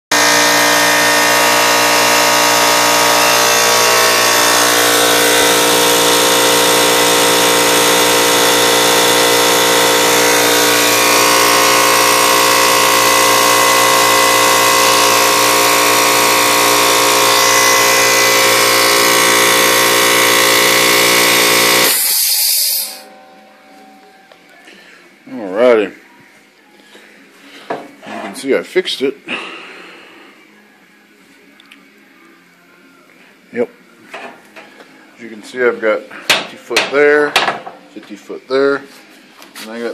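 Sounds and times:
air compressor motor whining: 0.1s - 24.5s.

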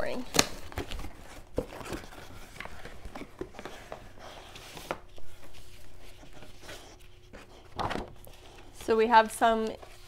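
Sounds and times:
paper and cardboard rustling: 0.1s - 10.0s.

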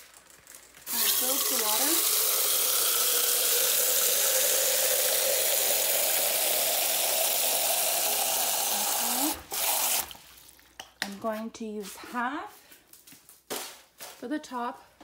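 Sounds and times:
hose water splashing into metal pail: 0.0s - 10.8s.

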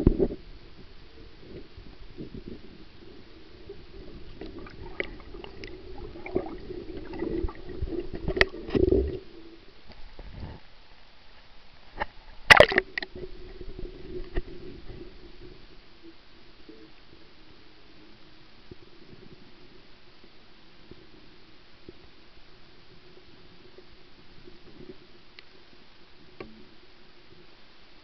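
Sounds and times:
faint steady hum: 0.0s - 28.0s
muffled underwater knocks and scrapes: 4.0s - 10.7s, 12.0s - 15.7s.

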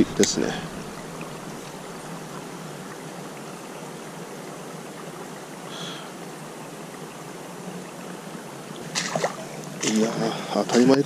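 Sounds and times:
water rushing from a spillway: 0.0s - 11.0s.

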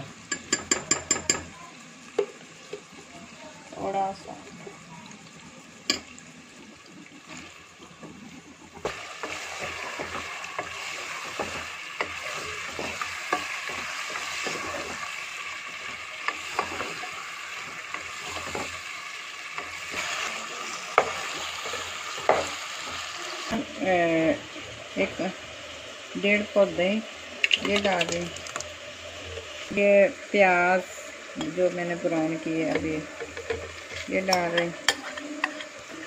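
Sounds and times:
chicken sizzling in a pot: 0.0s - 36.0s
wooden spoon knocking pot: 0.3s - 1.5s.

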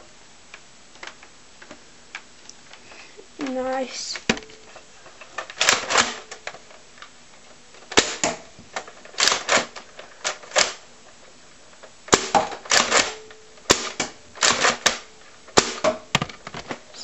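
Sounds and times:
toy blaster pumping and firing: 5.6s - 6.2s, 9.1s - 10.8s, 12.1s - 15.0s.

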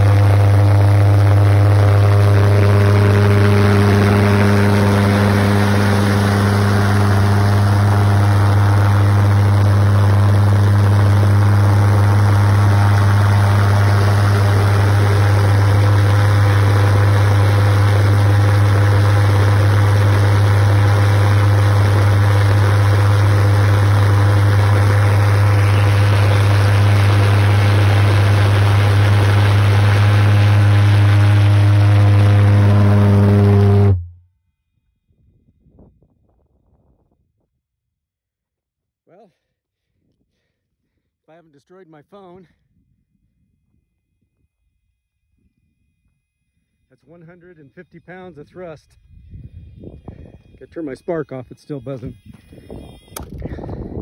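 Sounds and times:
pulsejet engine droning: 0.0s - 34.2s, 45.5s - 54.0s.

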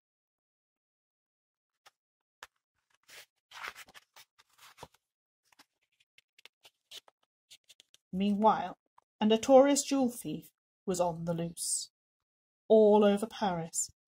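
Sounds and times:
book page turning: 2.4s - 8.0s.

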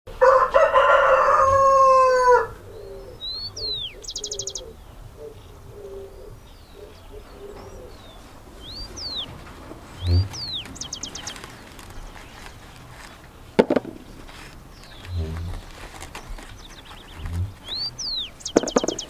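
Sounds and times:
rooster crowing: 0.2s - 2.6s
low cooing notes: 1.5s - 11.3s
small birds chirping: 2.5s - 19.0s.

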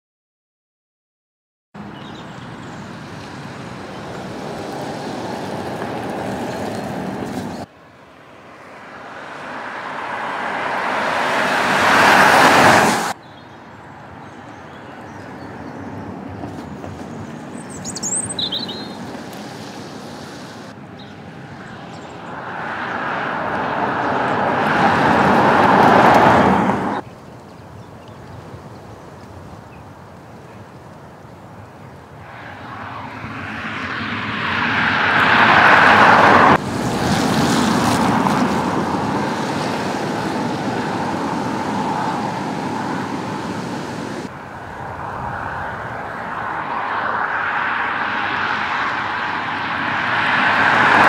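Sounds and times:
car tyre and road noise: 1.8s - 51.0s
bird chirping: 1.9s - 2.9s, 13.2s - 19.1s.

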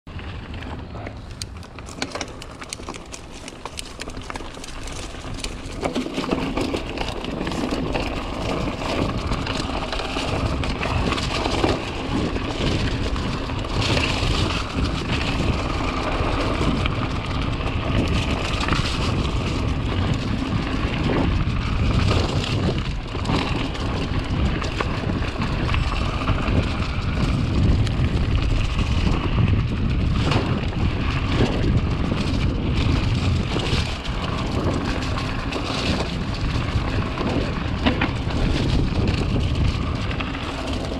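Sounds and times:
bike rattling over bumps: 0.1s - 40.9s
tyres rolling over dirt and rocks: 0.1s - 40.9s
wind rumbling on microphone: 0.1s - 40.9s.

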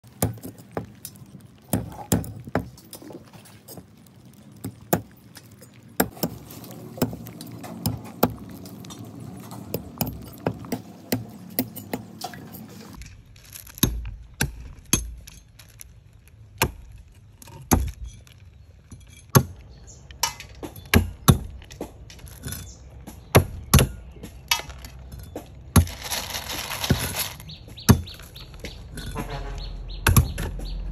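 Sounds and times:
snail shells clicking together: 0.0s - 10.8s.

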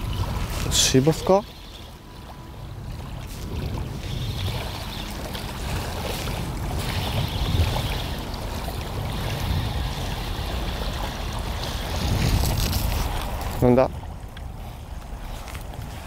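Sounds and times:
small waves lapping on shore: 0.0s - 16.0s
wind rumble on microphone: 0.0s - 16.0s.

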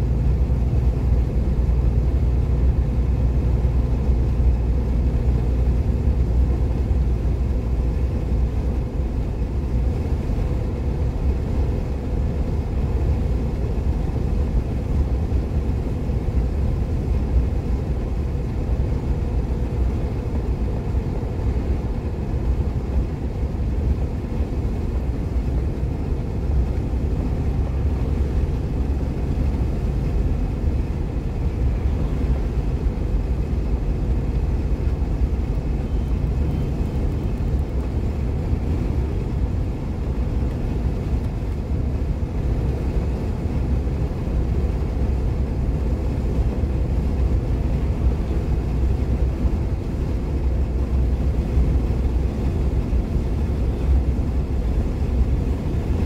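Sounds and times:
car engine: 0.0s - 56.0s
tyre and road noise: 12.4s - 56.0s.

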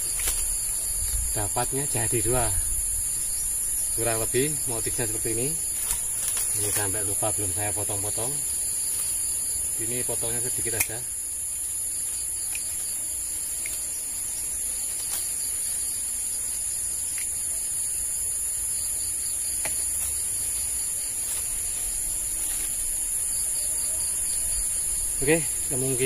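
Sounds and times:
crickets chirping: 0.0s - 26.0s
faint twig trimming clicks: 5.8s - 6.9s, 10.6s - 11.0s, 12.1s - 13.9s, 14.8s - 15.4s.

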